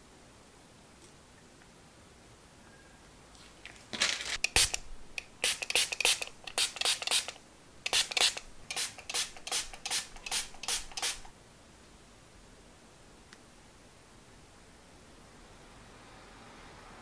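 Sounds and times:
spray bottle hissing: 0:04.4 - 0:11.3.

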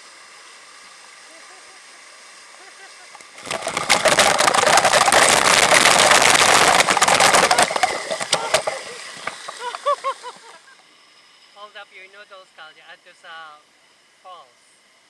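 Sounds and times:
water splashing: 0:02.6 - 0:10.6
waterfall rushing: 0:02.7 - 0:09.8.

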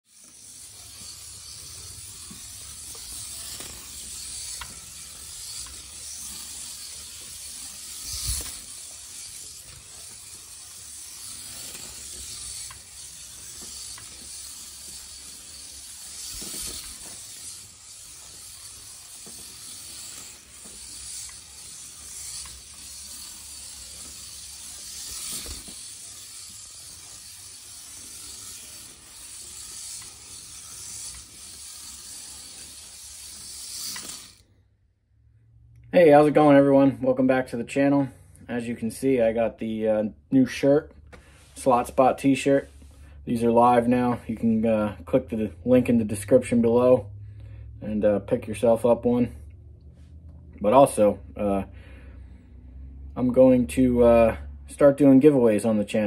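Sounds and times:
slot car motor whirring: 0:00.0 - 0:34.7.

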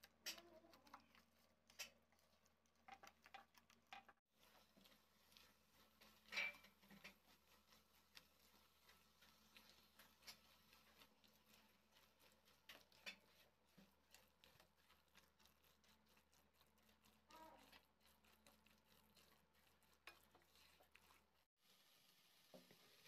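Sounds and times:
spatula scraping a pan: 0:00.0 - 0:21.5
spatula tapping a pan: 0:04.8 - 0:07.4.

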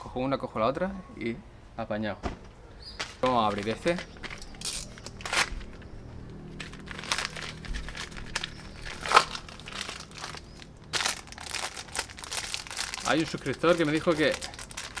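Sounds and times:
padded envelope tearing open: 0:06.6 - 0:15.0.

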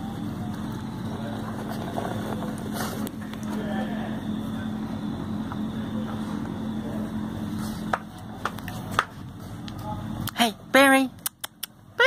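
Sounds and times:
steady background rumble: 0:00.0 - 0:12.0
sharp clicks: 0:11.2 - 0:11.8.

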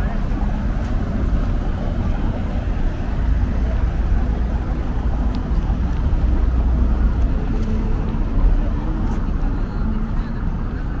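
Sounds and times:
city street noise: 0:00.0 - 0:11.0.

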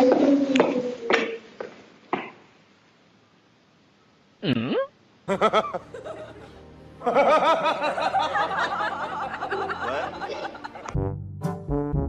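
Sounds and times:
background music: 0:05.3 - 0:12.0.

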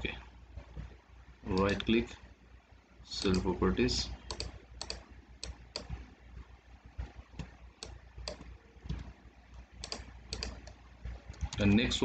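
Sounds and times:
keyboard and mouse clicks: 0:01.5 - 0:01.9, 0:03.2 - 0:03.5, 0:04.2 - 0:06.0, 0:07.0 - 0:09.1, 0:09.8 - 0:11.8.

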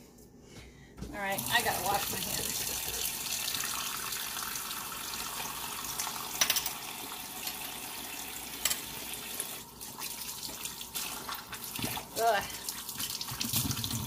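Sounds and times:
faucet water splashing: 0:01.2 - 0:14.0.

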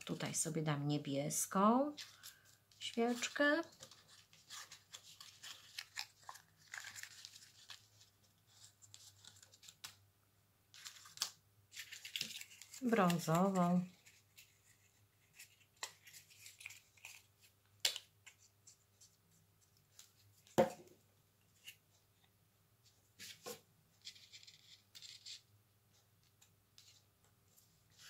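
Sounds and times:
paper rustling: 0:02.0 - 0:10.0, 0:10.7 - 0:20.6.

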